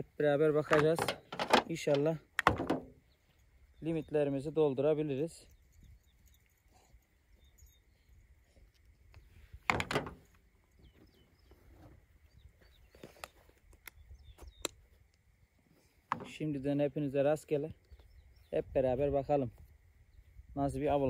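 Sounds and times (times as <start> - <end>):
sharp clicks: 13.2 - 15.2.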